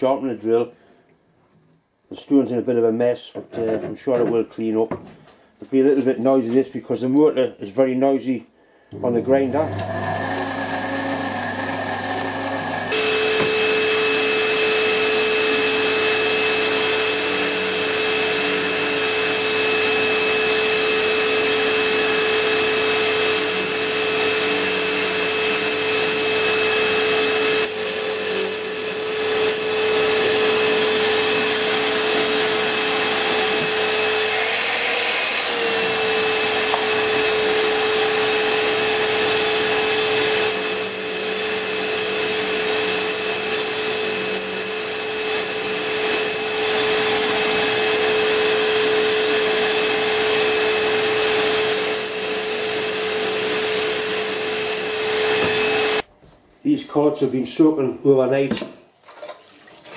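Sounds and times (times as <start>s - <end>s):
grinder motor whine: 9.0s - 56.0s.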